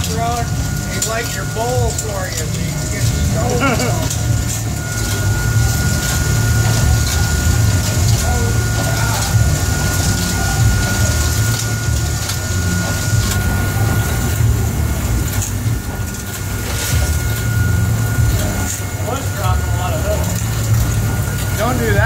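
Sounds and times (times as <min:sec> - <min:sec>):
low machinery rumble: 0:00.0 - 0:22.0.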